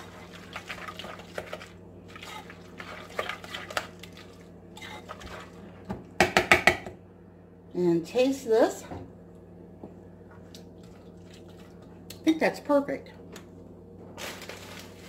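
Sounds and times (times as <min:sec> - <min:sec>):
wet squishing of salad stirring: 0:00.0 - 0:05.8, 0:10.4 - 0:12.1, 0:14.2 - 0:15.0.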